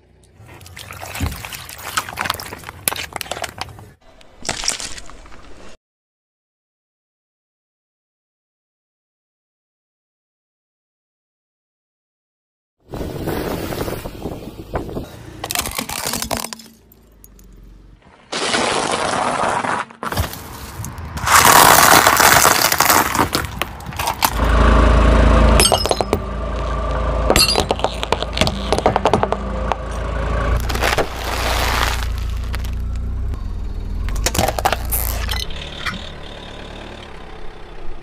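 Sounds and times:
tyres crushing objects: 0.7s - 5.6s, 15.4s - 17.1s, 18.0s - 24.5s, 27.3s - 29.8s, 30.6s - 32.9s, 34.1s - 35.3s
low car rumble: 12.9s - 18.2s, 20.6s - 38.0s.

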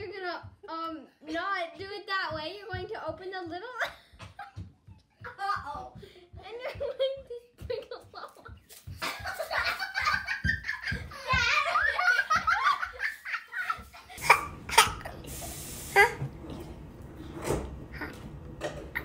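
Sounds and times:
people laughing hard: 7.7s - 14.2s.

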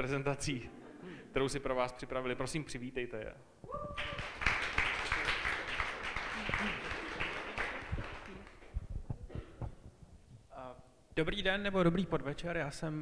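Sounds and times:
audience applauding: 4.0s - 8.8s.

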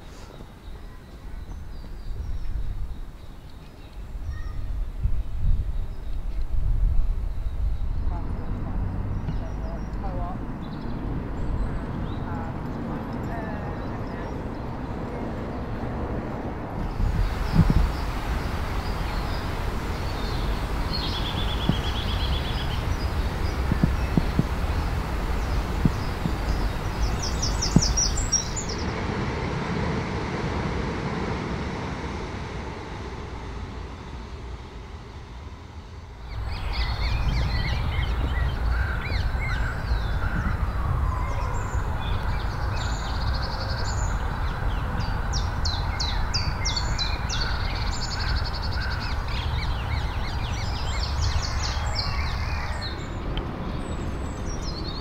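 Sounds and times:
birds chirping and trilling: 0.0s - 6.4s, 16.8s - 28.9s, 36.2s - 55.0s
low background rumble: 4.0s - 55.0s.

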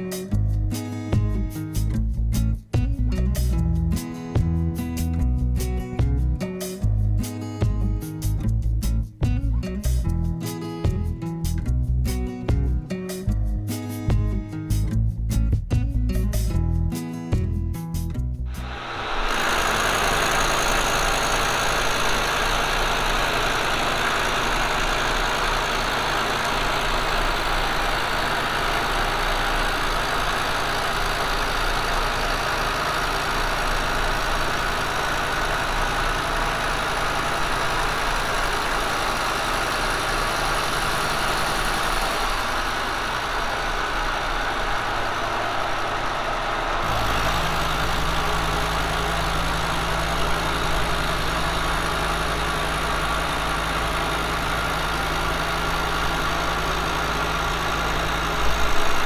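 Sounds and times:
milling machine cutting metal: 18.5s - 45.6s, 46.6s - 59.0s.

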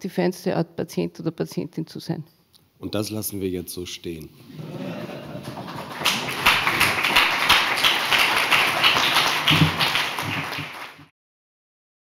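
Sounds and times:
audience applauding: 4.8s - 11.1s.

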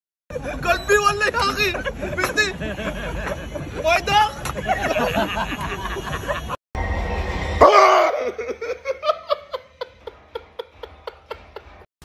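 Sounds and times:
person laughing: 4.6s - 6.6s, 7.8s - 11.8s
person crying out loudly: 7.6s - 8.6s.

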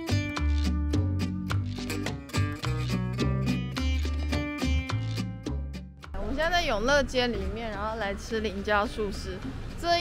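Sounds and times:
plucked string melody: 0.0s - 6.2s.

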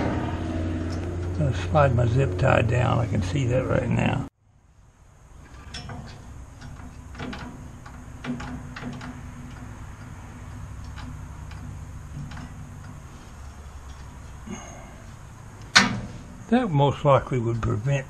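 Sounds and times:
clicks and taps of metal bar: 5.5s - 13.0s
sharp knock of bar lowered: 15.7s - 16.3s.

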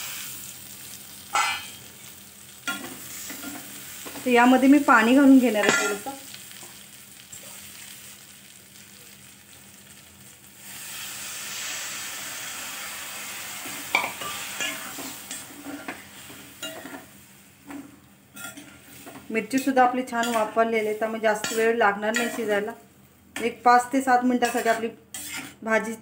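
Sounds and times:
water hissing in hot pan: 0.0s - 17.5s, 18.8s - 21.8s
spatula scraping metal pan: 19.6s - 22.5s, 24.4s - 25.6s.

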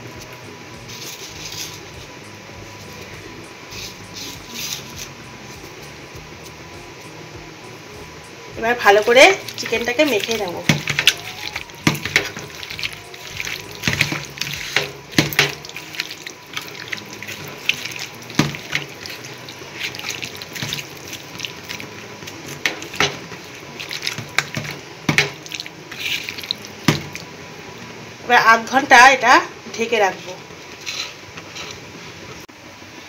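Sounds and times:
hand kneading wet chicken squelching: 15.6s - 24.3s.

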